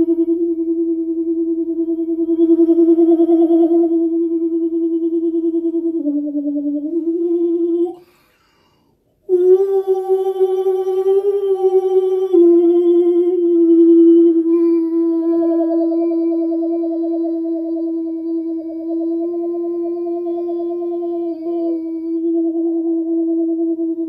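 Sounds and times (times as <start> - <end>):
man singing held notes: 9.3 - 24.0.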